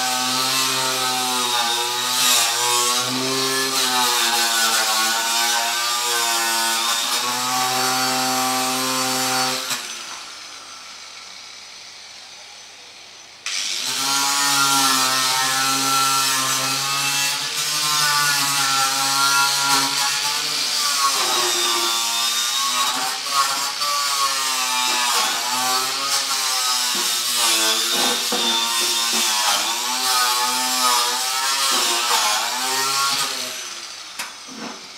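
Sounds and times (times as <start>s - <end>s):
power tool running on metal: 13.4s - 34.9s.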